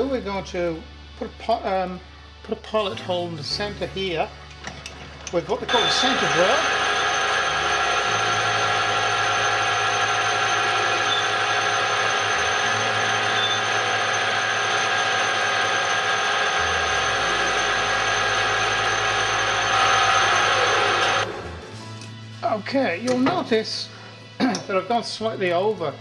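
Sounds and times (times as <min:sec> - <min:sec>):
metal lathe whining: 0:05.2 - 0:21.6
drill cutting steel bar: 0:05.7 - 0:21.3.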